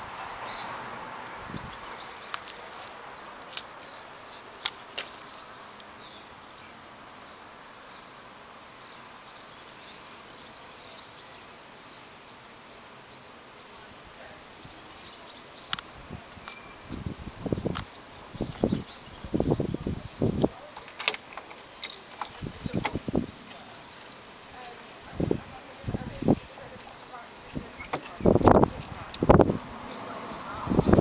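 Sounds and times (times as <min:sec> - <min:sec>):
background hiss: 0:00.0 - 0:31.0
faint high chirps: 0:16.4 - 0:20.6.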